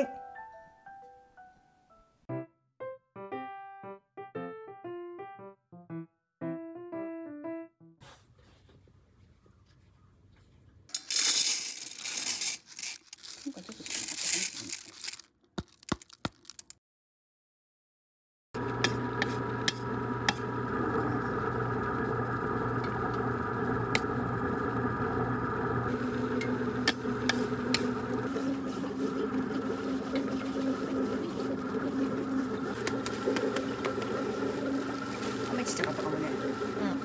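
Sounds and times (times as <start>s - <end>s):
motor humming: 18.6s - 37.0s.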